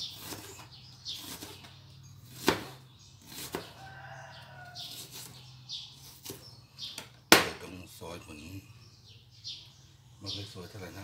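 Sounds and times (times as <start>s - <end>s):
knife slicing onion: 0.0s - 3.8s.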